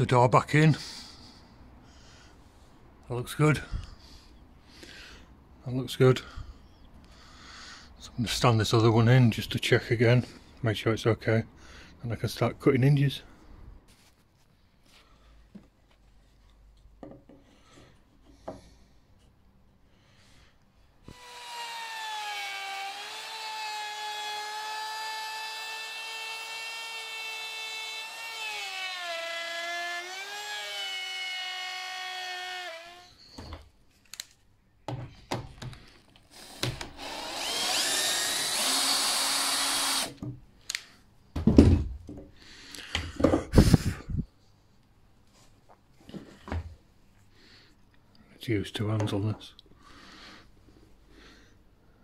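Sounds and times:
router whining: 0:21.1 - 0:33.6, 0:36.3 - 0:40.2.

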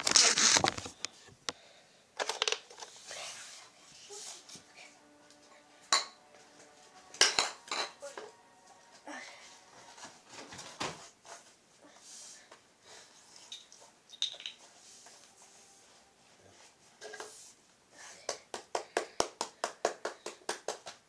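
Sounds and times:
plastic items clacking on tiles: 0:00.0 - 0:01.2, 0:02.2 - 0:03.1, 0:13.5 - 0:14.6.

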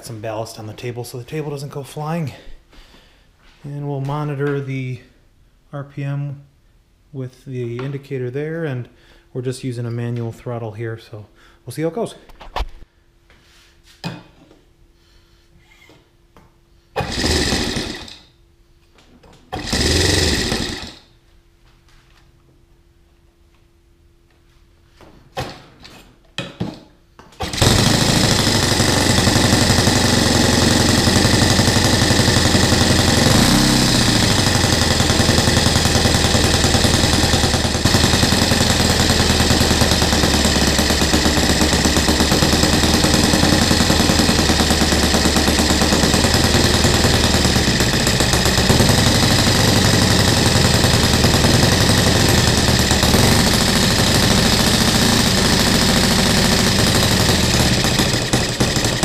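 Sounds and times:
model engine running: 0:17.0 - 0:18.2, 0:19.6 - 0:21.0, 0:27.4 - 0:59.0
electric starter spinning: 0:17.0 - 0:18.4, 0:19.5 - 0:21.1, 0:27.4 - 0:59.0.

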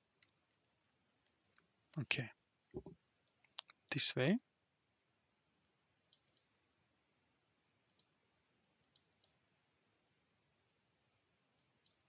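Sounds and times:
faint computer mouse clicks: 0:05.6 - 0:06.5, 0:07.9 - 0:08.1, 0:08.8 - 0:09.4, 0:11.6 - 0:12.0.

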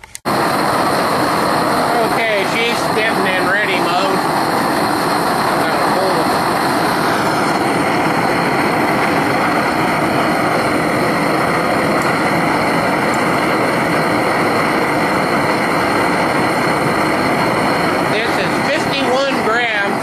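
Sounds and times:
propane torch flame roaring: 0:00.1 - 0:20.0.

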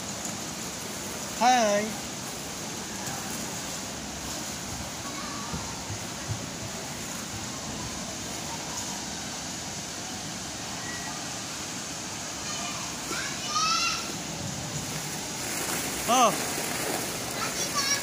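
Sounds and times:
distant children's voices: 0:04.7 - 0:14.9, 0:16.9 - 0:18.0
indoor play area din: 0:04.8 - 0:06.7, 0:12.3 - 0:14.7, 0:16.6 - 0:18.0.

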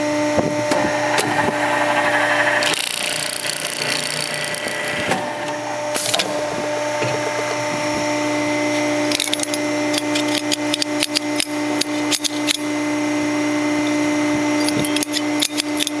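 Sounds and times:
press machine humming: 0:00.0 - 0:10.1.

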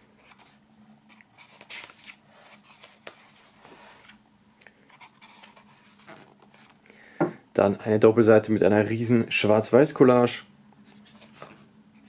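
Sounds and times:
paper pages rustling: 0:00.0 - 0:06.8, 0:10.8 - 0:12.0.

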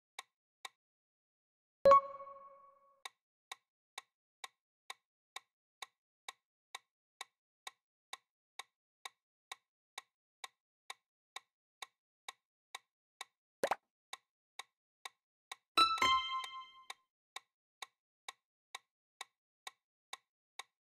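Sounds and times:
clock-like timer ticks: 0:05.8 - 0:20.7.

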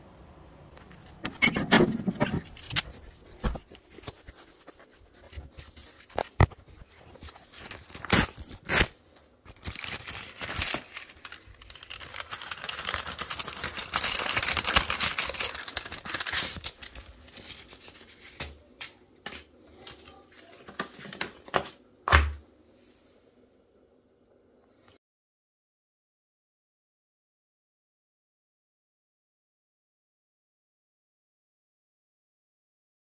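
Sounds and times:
paper rustling and crinkling: 0:00.8 - 0:21.8
paper envelope tearing: 0:01.0 - 0:21.7.

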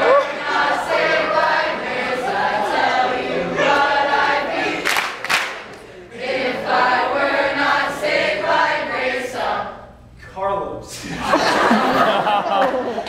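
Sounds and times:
group singing unaccompanied: 0:00.0 - 0:10.0.

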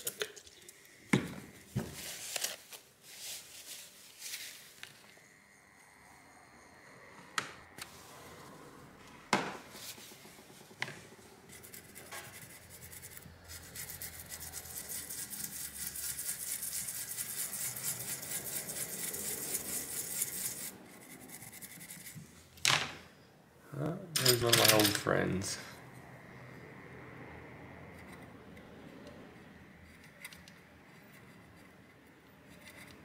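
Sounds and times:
swab scrubbing scratchy rubbing: 0:11.5 - 0:22.2.

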